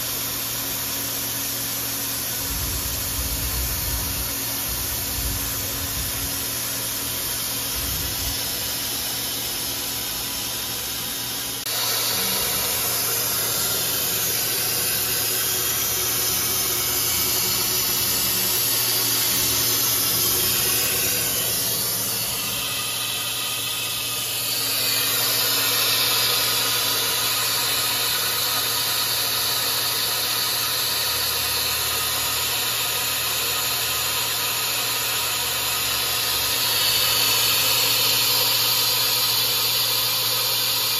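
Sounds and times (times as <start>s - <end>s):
machinery hum and hiss: 0.0s - 40.9s
low electrical hum: 1.3s - 29.1s.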